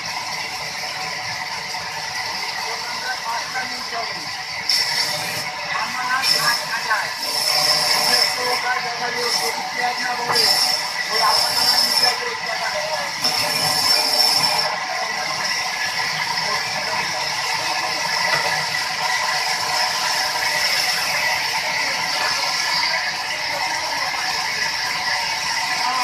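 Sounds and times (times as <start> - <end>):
band saw cutting log: 0.0 - 26.0.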